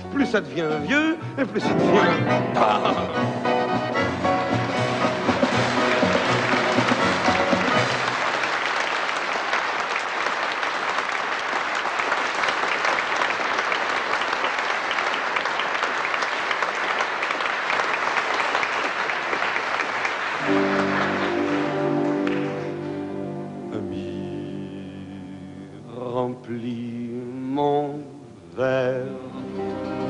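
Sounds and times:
instrumental music: 0:00.0 - 0:08.3, 0:20.4 - 0:26.0
band playing: 0:00.0 - 0:08.6, 0:20.4 - 0:26.1
audience applauding: 0:02.6 - 0:23.1.

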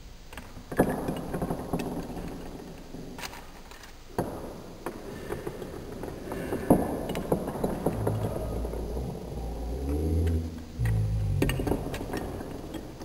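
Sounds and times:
low hum: 0:07.6 - 0:13.0.

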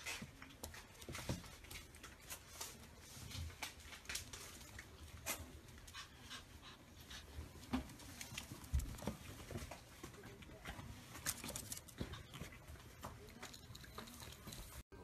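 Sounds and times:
puppy panting: 0:05.2 - 0:08.5.

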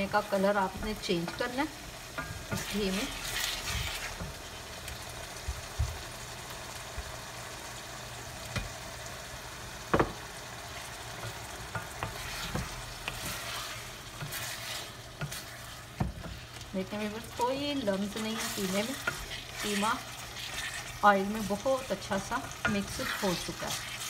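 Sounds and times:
meat sizzling in a pan: 0:00.0 - 0:24.0
wooden spoon knocking pan: 0:09.9 - 0:10.2.

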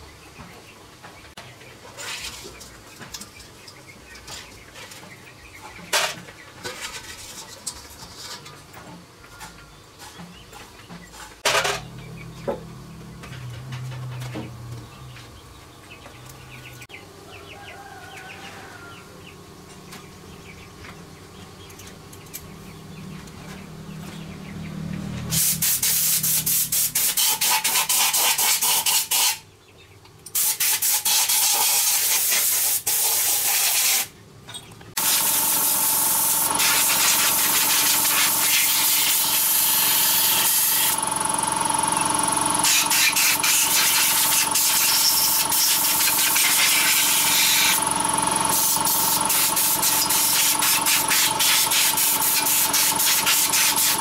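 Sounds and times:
compressed air blow gun hissing: 0:35.0 - 0:41.0, 0:42.6 - 0:47.8, 0:48.5 - 0:54.0.

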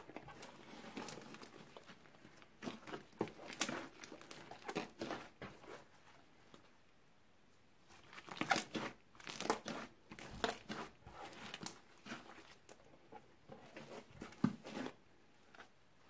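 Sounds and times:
hands squishing slime: 0:00.2 - 0:05.8, 0:07.9 - 0:12.8.

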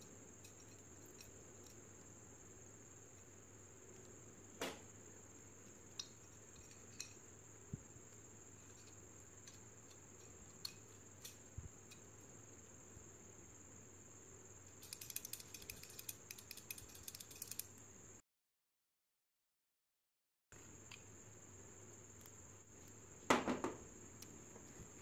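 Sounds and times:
metallic clicks of pistol parts: 0:05.9 - 0:07.2, 0:08.7 - 0:12.1, 0:14.7 - 0:17.8.

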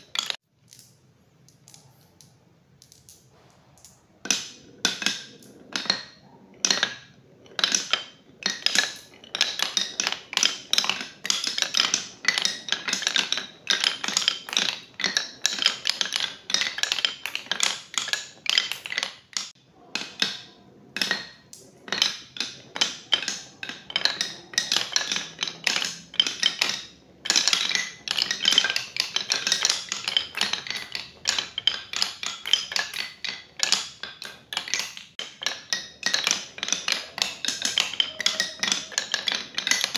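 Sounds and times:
marbles rolling on wooden run: 0:00.0 - 0:00.9, 0:02.8 - 0:39.9.

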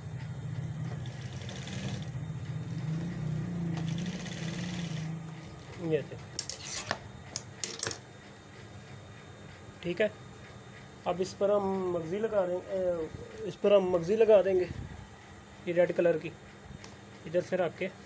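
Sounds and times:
sewing machine stitching: 0:01.0 - 0:02.2, 0:03.7 - 0:05.1.

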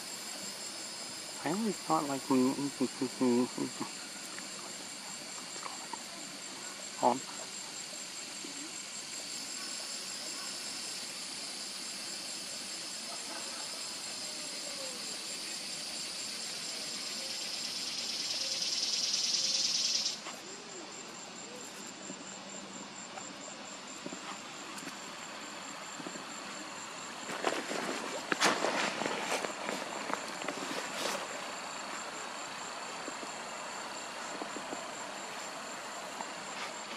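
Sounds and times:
insects buzzing: 0:00.0 - 0:36.9.

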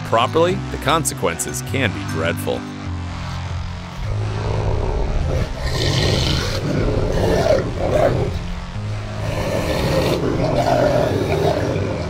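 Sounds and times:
dog growling and snarling: 0:04.0 - 0:08.6, 0:09.2 - 0:12.0.

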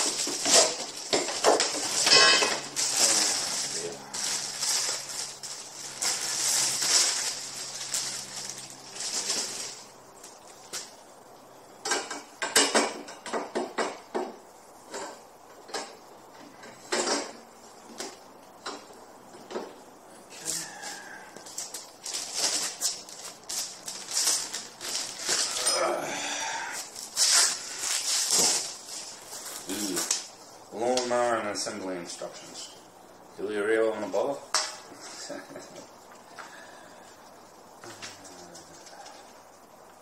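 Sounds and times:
rustling: 0:00.0 - 0:11.0, 0:20.3 - 0:25.8, 0:26.6 - 0:30.6.

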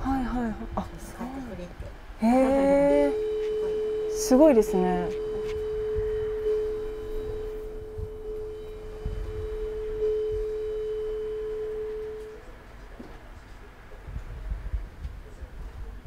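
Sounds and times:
metal singing bowl ringing: 0:02.4 - 0:12.4.

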